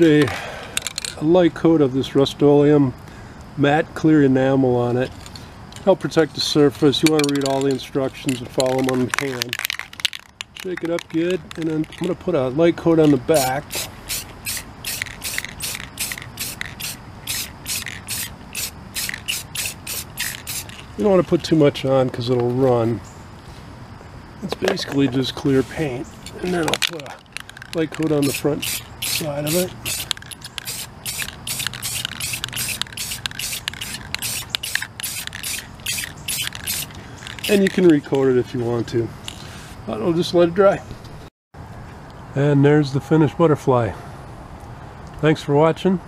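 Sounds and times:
spray can hissing in bursts: 13.4 - 21.0, 28.0 - 37.8.

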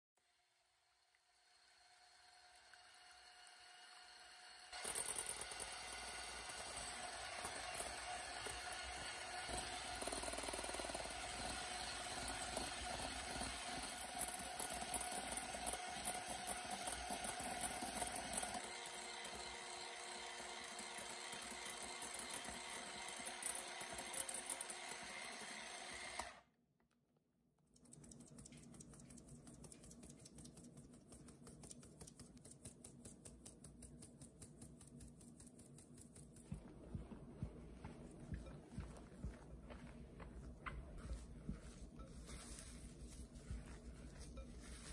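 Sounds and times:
electric hand mixer whirring: 0.9 - 26.5
spatula scraping and tapping a bowl: 41.0 - 44.9.

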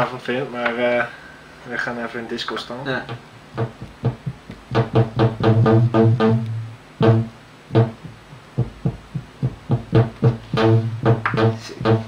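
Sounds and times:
deep electronic bass notes: 3.6 - 12.0.

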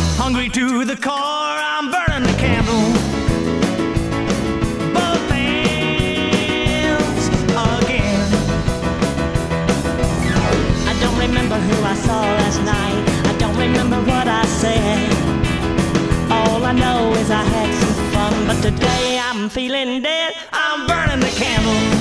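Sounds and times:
rock and roll band with piano: 0.0 - 22.0.

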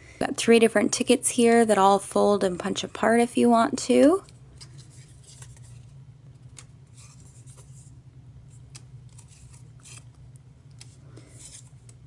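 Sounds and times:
low steady hum: 0.0 - 12.0
paper rustling: 4.6 - 5.9, 6.6 - 7.9, 8.5 - 10.2.

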